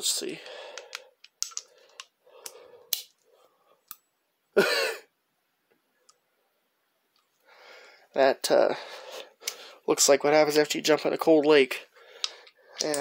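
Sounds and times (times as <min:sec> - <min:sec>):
metal socket clicks: 0:00.8 - 0:02.1
person coughing: 0:04.6 - 0:05.1.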